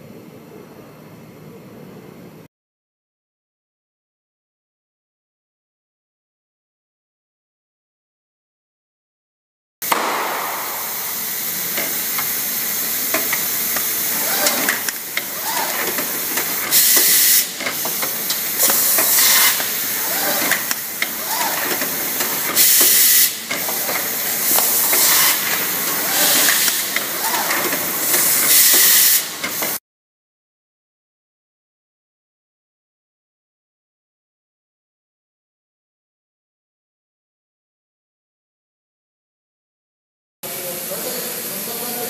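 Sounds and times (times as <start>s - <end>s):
air exhaust blasts: 9.8s - 29.8s
compressed air hissing: 9.8s - 29.8s
machine parts clicking and clacking: 13.1s - 29.8s.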